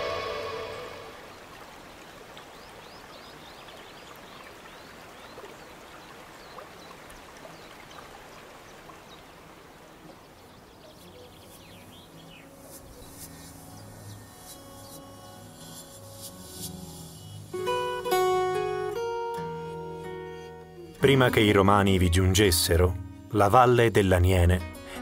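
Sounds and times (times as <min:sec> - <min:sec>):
stream water trickling: 0:00.1 - 0:18.5
water drips and plinks: 0:01.3 - 0:10.3.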